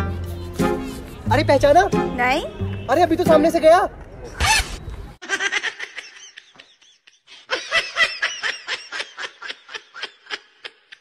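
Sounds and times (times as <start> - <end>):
person laughing: 5.2 - 11.0.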